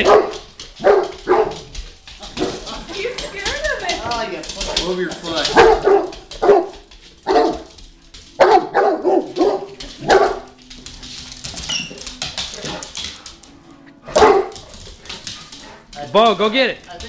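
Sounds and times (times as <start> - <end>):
dog barking: 0.0 - 2.7, 4.6 - 10.6, 14.1 - 14.8.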